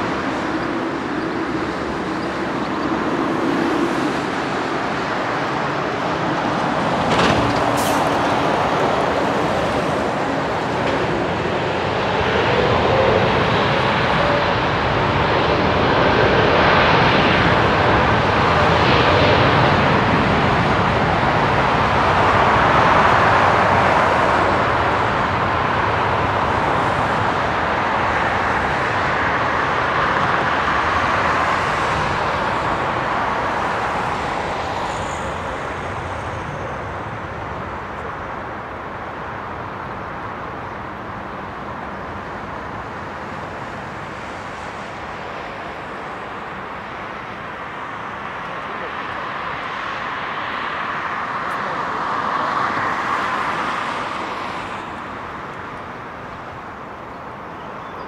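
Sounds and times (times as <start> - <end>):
jet engines roaring: 0.0 - 58.0.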